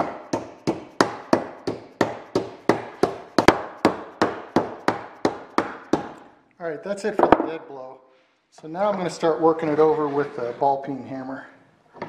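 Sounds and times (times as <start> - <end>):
hammer striking sheet metal: 0.0 - 6.3.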